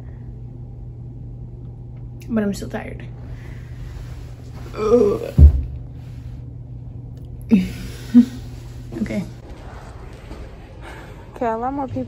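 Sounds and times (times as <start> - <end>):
woman grunting: 4.7 - 5.5
sharp low thump: 5.4 - 5.8.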